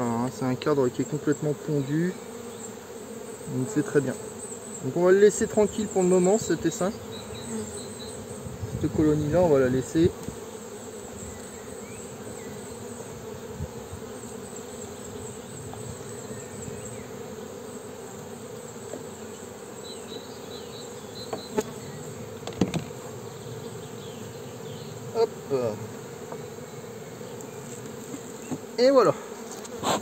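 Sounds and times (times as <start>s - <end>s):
bees buzzing: 0.0s - 30.0s
sharp knocks: 22.4s - 22.9s.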